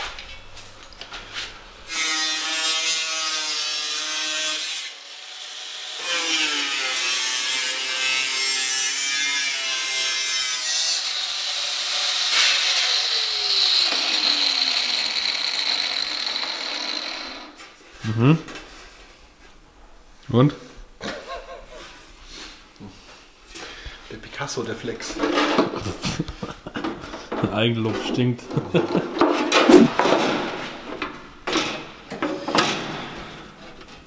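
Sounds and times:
angle grinder cutting metal: 0:01.9 - 0:17.6.

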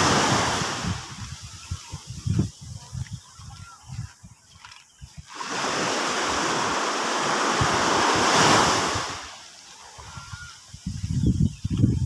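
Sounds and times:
wave washing on sand: 0:00.0 - 0:02.2, 0:05.2 - 0:10.8
wind rumble on microphone: 0:00.0 - 0:09.3, 0:09.9 - 0:12.0.

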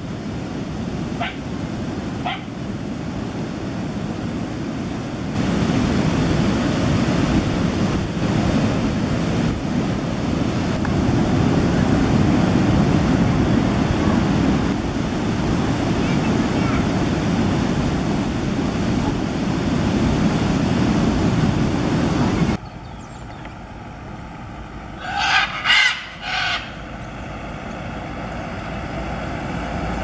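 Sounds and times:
ocean surf breaking: 0:00.0 - 0:22.6, 0:23.8 - 0:30.0
wind buffeting microphone: 0:00.0 - 0:25.0
dog barking: 0:01.2 - 0:01.4, 0:02.2 - 0:02.5.

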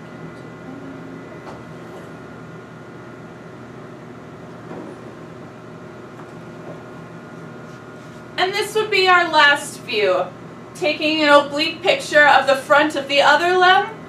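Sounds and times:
electrical hum of medical equipment: 0:00.0 - 0:14.0.

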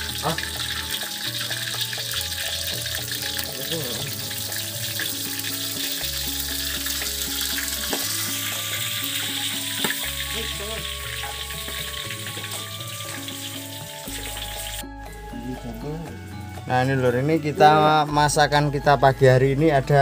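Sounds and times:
oil popping: 0:00.0 - 0:14.8
background music with bass: 0:00.0 - 0:20.0
chilies sizzling in oil: 0:00.0 - 0:20.0.

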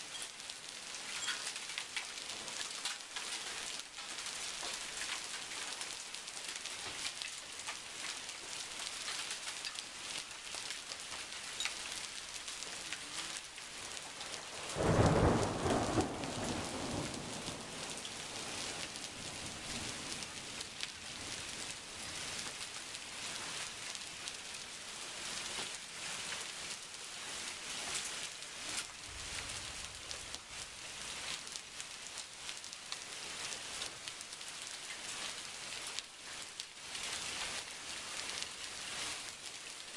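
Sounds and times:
rain hiss: 0:00.0 - 0:39.9
hail ticking: 0:01.2 - 0:25.5
thunder rumbling: 0:14.5 - 0:21.6.

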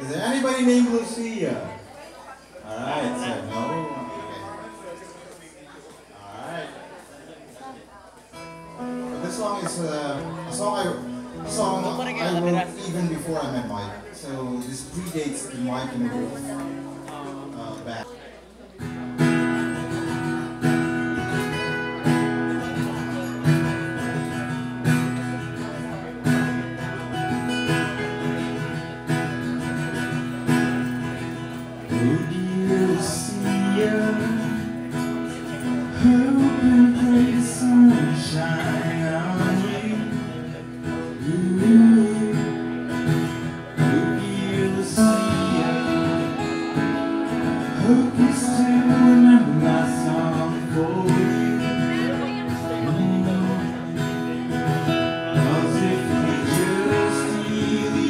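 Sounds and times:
acoustic guitars strumming: 0:00.0 - 0:02.0, 0:02.6 - 0:05.6, 0:08.3 - 0:58.0
man singing: 0:02.7 - 0:04.6, 0:09.1 - 0:16.7, 0:31.9 - 0:58.0.

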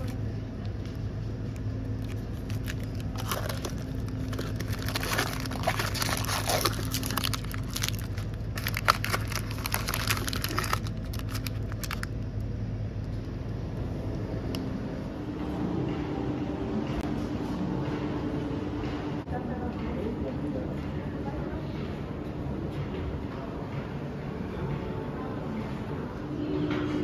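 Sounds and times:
steady low hum: 0:00.0 - 0:27.0
plastic wrappers crinkling: 0:01.9 - 0:12.2.

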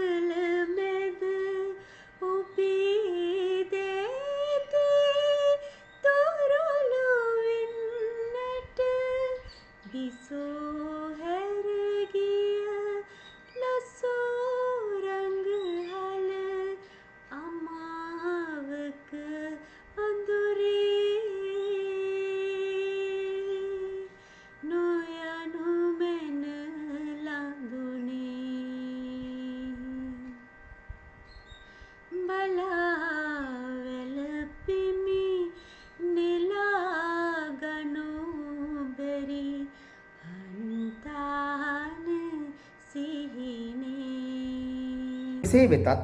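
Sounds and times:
woman singing unaccompanied: 0:00.0 - 0:30.6, 0:32.1 - 0:45.4
singer breathing: 0:01.8 - 0:02.2, 0:24.2 - 0:24.6, 0:31.7 - 0:32.1, 0:35.6 - 0:36.0.

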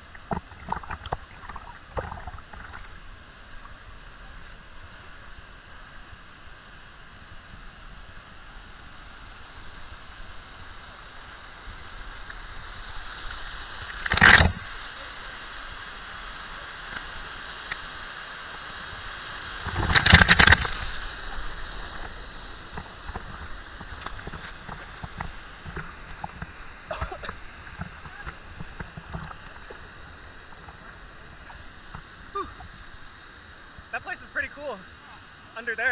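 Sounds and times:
water splashing on camera: 0:00.0 - 0:03.0, 0:13.8 - 0:15.0, 0:19.4 - 0:32.8.

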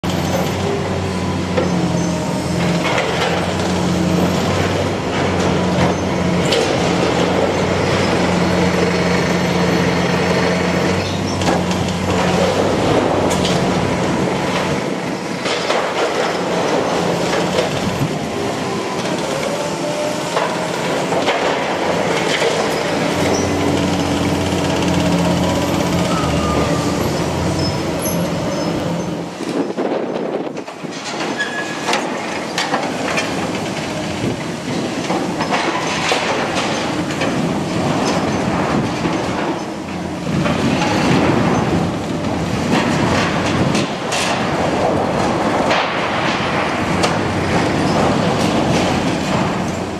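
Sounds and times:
diesel excavator engine running: 0:00.0 - 0:49.9
metal crunching and clanking: 0:10.7 - 0:49.9.

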